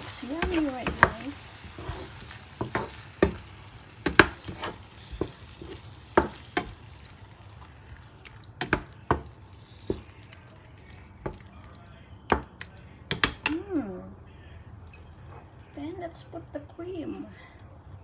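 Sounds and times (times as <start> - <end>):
spatula knocking and scraping pan: 0.0 - 6.9, 8.6 - 10.1.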